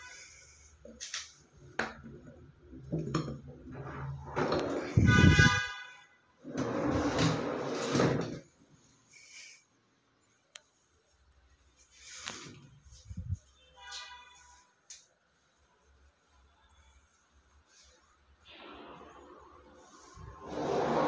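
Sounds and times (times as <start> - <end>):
drawer rolling on metal slides: 2.1 - 5.4, 6.4 - 8.5, 18.5 - 21.0.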